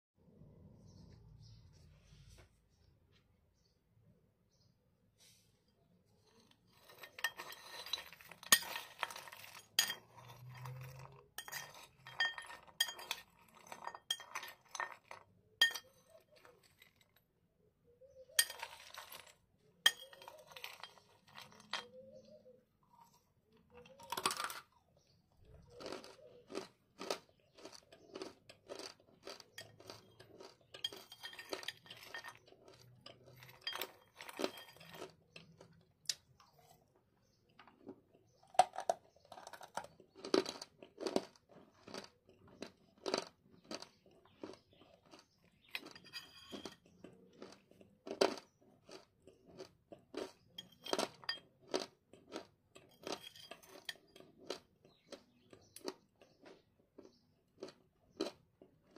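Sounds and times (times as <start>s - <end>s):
crunchy chewing: 6.1s - 17.3s, 18.3s - 58.9s
metal spoon clinking on ceramic bowl: 6.8s - 16.5s, 18.4s - 22.1s, 30.7s - 32.4s, 33.0s - 35.0s, 45.8s - 46.9s, 50.6s - 51.5s.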